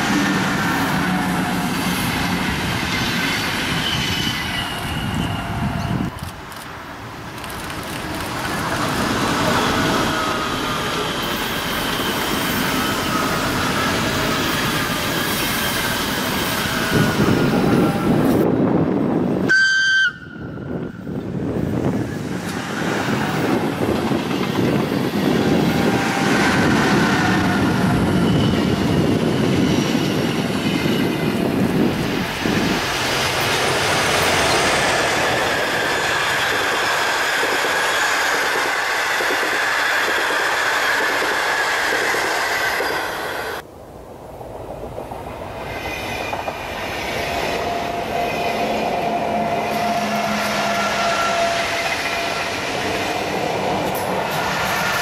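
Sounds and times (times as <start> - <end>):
train wheels rushing on rails: 0.0 - 55.0.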